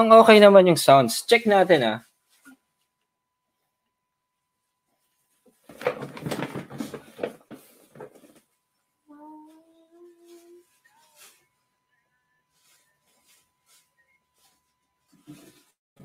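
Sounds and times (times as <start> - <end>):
faint high tone: 9.0 - 14.7.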